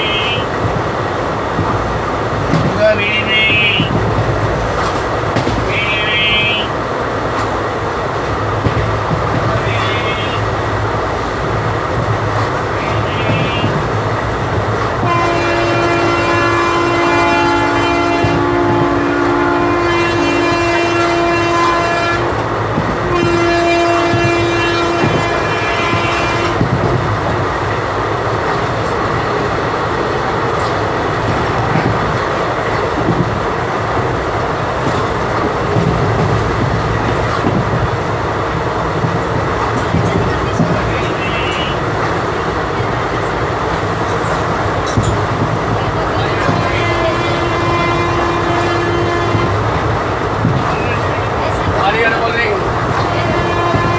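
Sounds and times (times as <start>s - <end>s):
locomotive horn blasts: 0.0s - 0.5s, 15.0s - 22.4s, 23.0s - 26.7s, 46.2s - 49.8s, 53.0s - 53.9s
train wheels clattering on rails: 0.0s - 53.9s.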